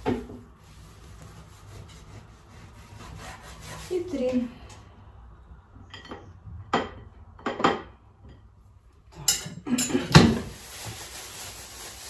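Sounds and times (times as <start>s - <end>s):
dishes and cutlery clattering: 5.8s - 8.6s, 9.2s - 10.5s.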